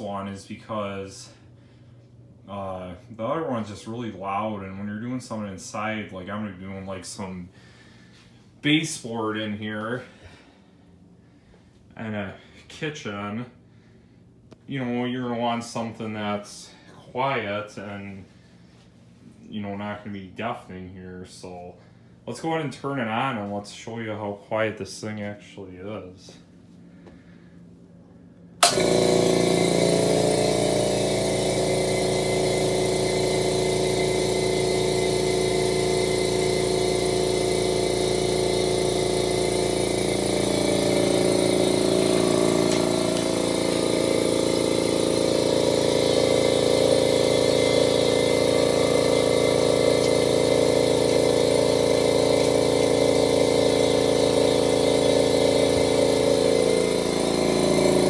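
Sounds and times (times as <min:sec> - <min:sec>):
air compressor running: 0:00.0 - 0:12.6, 0:28.6 - 0:58.0.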